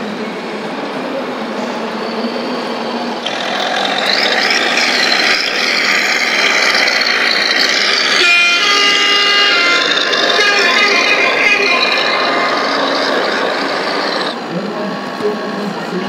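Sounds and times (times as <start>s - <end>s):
model truck engine: 3.0s - 16.0s
motor whine: 3.2s - 15.3s.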